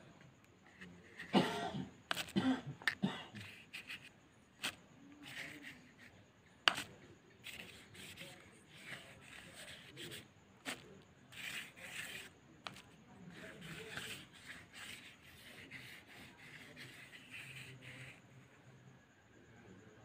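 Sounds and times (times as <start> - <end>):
paintbrush scratching on paper: 0.7 - 1.3, 2.1 - 2.4, 3.4 - 6.1, 6.7 - 18.4.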